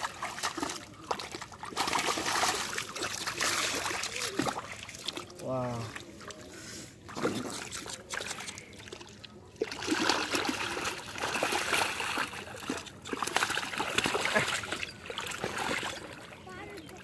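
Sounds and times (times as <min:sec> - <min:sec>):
hands splashing in muddy water: 0:00.0 - 0:06.4, 0:09.6 - 0:16.2.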